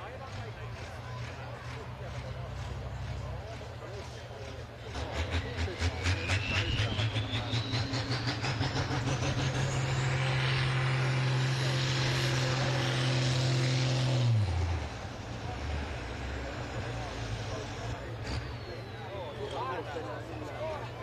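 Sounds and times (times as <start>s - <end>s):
tractor diesel engine revving: 0.0s - 21.0s
high whine: 5.0s - 12.8s.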